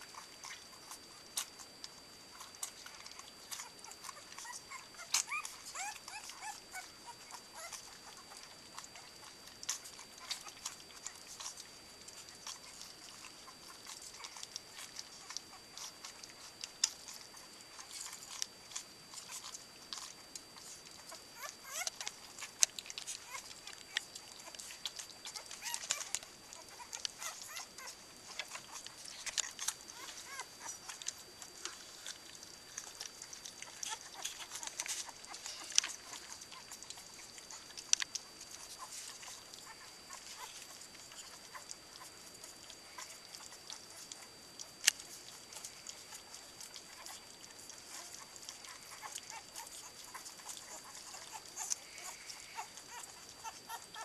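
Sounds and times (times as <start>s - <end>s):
faint high whine: 0.0s - 54.0s
puppies lapping food: 0.0s - 54.0s
puppy squeaks: 2.4s - 9.1s, 19.2s - 31.0s, 47.9s - 54.0s.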